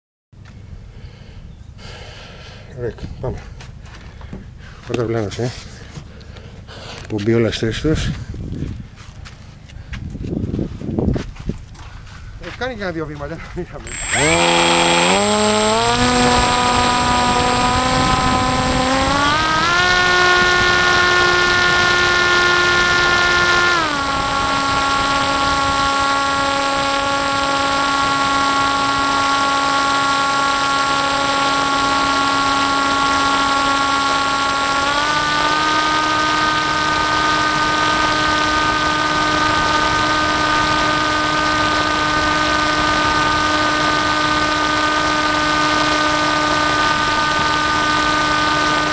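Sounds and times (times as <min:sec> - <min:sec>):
model aircraft motor whine: 0:13.8 - 0:48.9.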